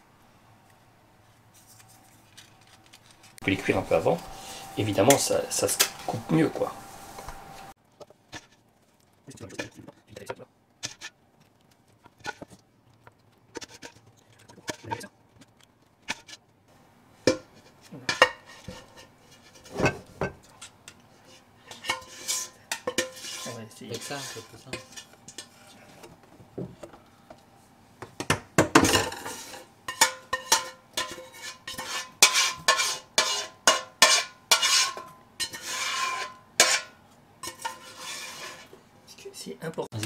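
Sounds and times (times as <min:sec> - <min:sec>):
utensil scraping a pan: 0:03.4 - 0:07.2, 0:08.0 - 0:08.6, 0:09.3 - 0:11.2, 0:12.0 - 0:12.6, 0:13.5 - 0:15.1, 0:16.0 - 0:16.4, 0:17.3 - 0:26.1, 0:28.8 - 0:38.8.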